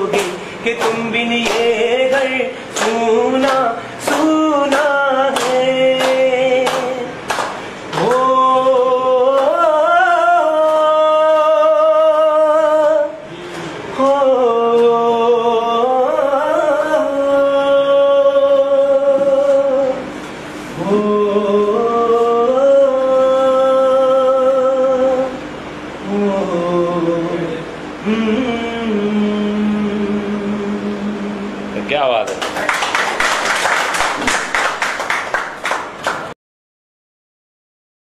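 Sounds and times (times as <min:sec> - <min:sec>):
man singing unaccompanied: 0:00.0 - 0:07.3, 0:07.9 - 0:13.3, 0:13.9 - 0:20.1, 0:20.8 - 0:25.4, 0:26.0 - 0:31.8
group clapping in time: 0:00.0 - 0:08.6, 0:32.2 - 0:36.4.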